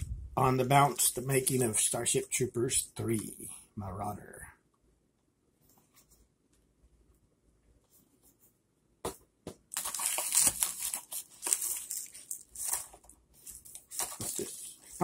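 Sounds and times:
plastic packaging crinkling: 9.7s - 15.0s.

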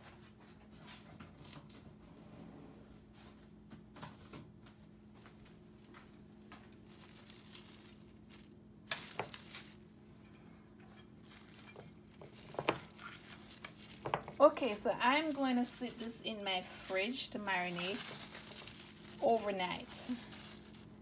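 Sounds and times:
plastic wrap crinkling: 5.2s - 9.9s, 11.2s - 21.0s.

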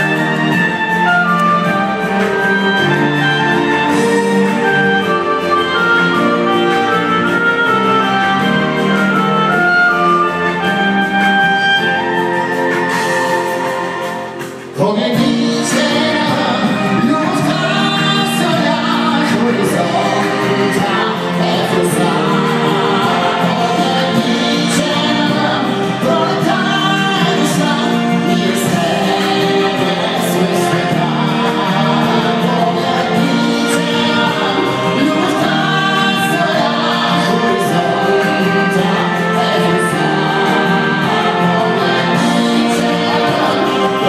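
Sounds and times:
amplified pop music: 0.0s - 44.0s
man singing into a microphone: 14.8s - 39.9s.

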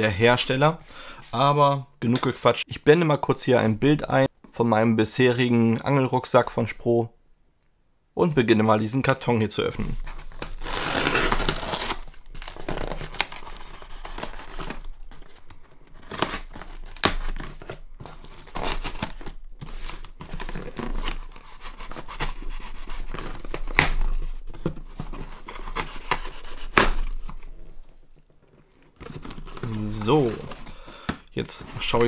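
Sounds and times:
cardboard rustling: 9.9s - 32.0s
tape tearing: 10.1s - 27.5s, 29.0s - 32.0s.

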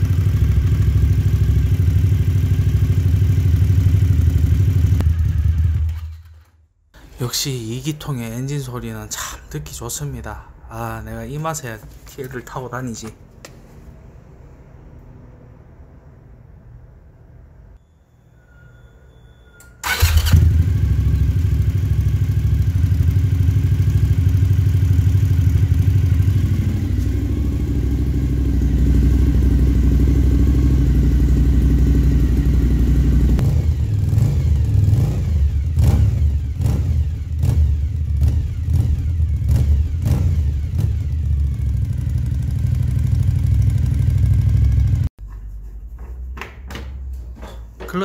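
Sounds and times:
motorcycle engine idling: 0.0s - 5.9s, 19.9s - 45.1s.

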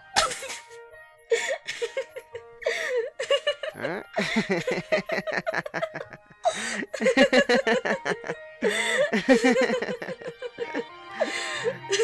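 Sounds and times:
soft background music: 0.0s - 12.0s
person laughing: 1.4s - 10.9s.

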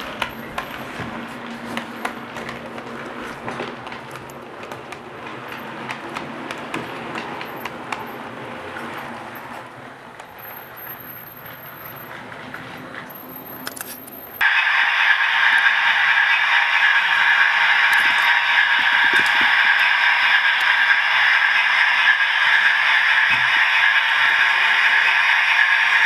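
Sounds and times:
model train coaches rumbling on track: 0.0s - 26.0s
sharp wheel clicks: 13.1s - 14.4s
steady high-pitched sound: 14.4s - 26.0s.

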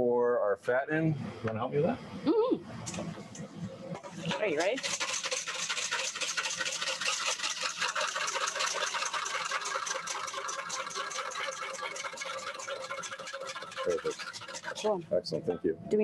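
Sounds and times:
wire whisk beating against bowl: 4.2s - 14.9s.

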